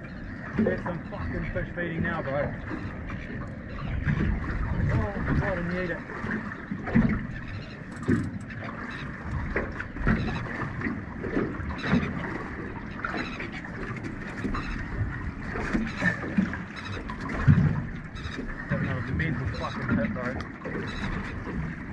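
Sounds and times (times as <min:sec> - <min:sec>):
splashes: 0:00.0 - 0:21.9
water lapping against boat hull: 0:00.0 - 0:21.9.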